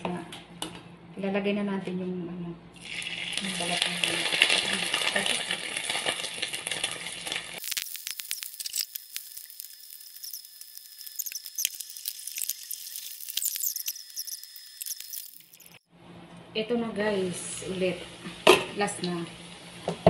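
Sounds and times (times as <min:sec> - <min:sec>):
chicken skin sizzling in oil: 0:02.8 - 0:15.8
crackling with sharp pops: 0:05.9 - 0:15.8.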